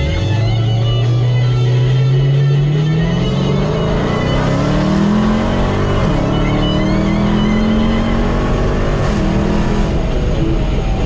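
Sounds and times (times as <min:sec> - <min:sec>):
car engine accelerating: 0:00.0 - 0:11.0.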